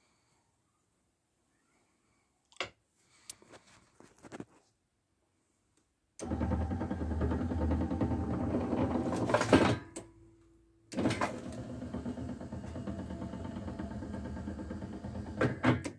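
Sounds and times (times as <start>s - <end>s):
mechanism humming and rattling: 6.2s - 9.6s, 10.9s - 15.4s.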